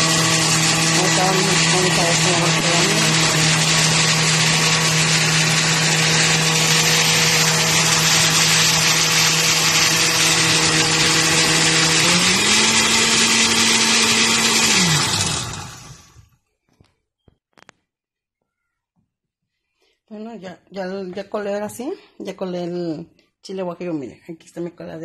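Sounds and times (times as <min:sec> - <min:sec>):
blender motor running: 0:00.0 - 0:16.3.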